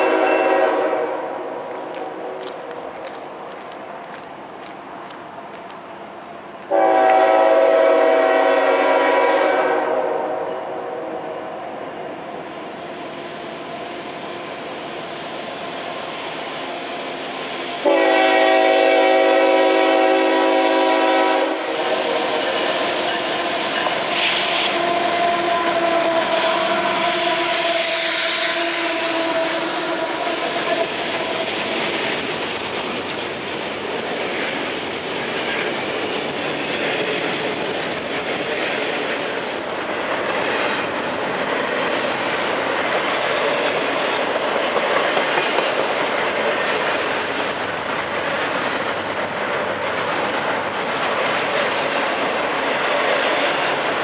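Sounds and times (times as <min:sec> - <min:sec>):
locomotive air horn blasts: 0:00.0 - 0:02.4, 0:06.7 - 0:11.3, 0:17.8 - 0:22.1, 0:24.2 - 0:31.0
train wheel and rail noise: 0:00.0 - 0:54.0.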